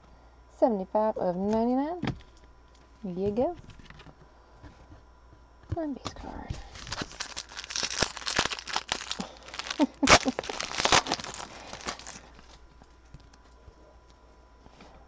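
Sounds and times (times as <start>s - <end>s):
foil wrapper tearing and crinkling: 6.6s - 12.6s.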